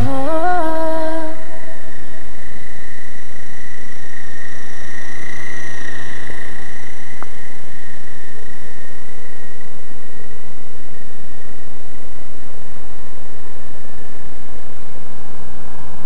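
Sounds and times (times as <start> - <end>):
model helicopter motor whine: 0.0 - 9.6.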